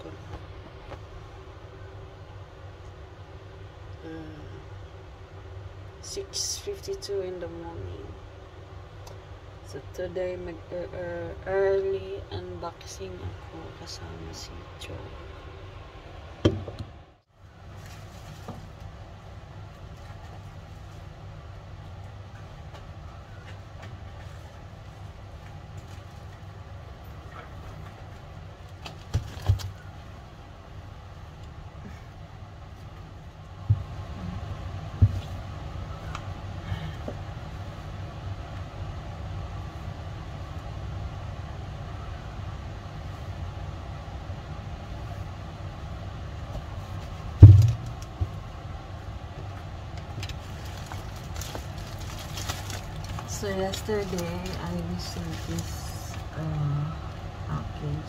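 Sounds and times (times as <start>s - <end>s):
steady low rumble: 0.0s - 28.8s, 29.7s - 58.0s
loud thump: 47.4s - 47.9s
plastic-wrapped parcel knocks: 47.4s - 48.4s.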